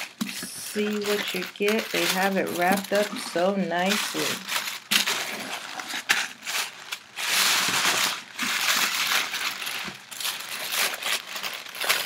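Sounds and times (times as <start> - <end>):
tissue paper rustling: 0.0 - 12.0.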